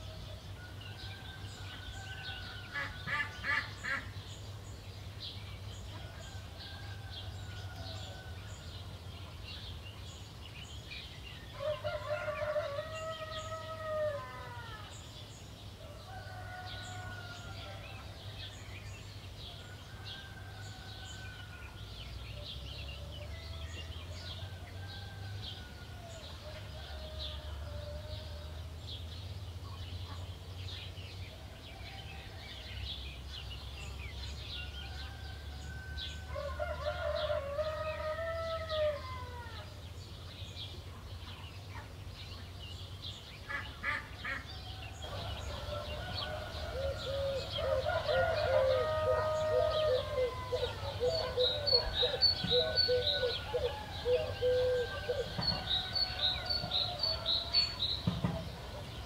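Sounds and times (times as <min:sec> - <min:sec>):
roosters crowing: 0:00.0 - 0:04.0, 0:05.9 - 0:08.8, 0:11.5 - 0:15.0, 0:15.8 - 0:18.3, 0:19.4 - 0:21.9, 0:22.9 - 0:28.7, 0:34.2 - 0:39.8, 0:44.2 - 0:59.0
songbirds chirping: 0:00.0 - 0:59.0.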